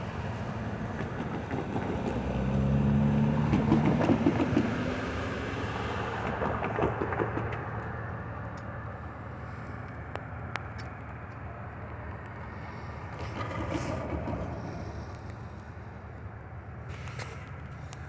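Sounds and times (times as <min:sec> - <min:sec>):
distant vehicle rumble: 0:00.0 - 0:18.0.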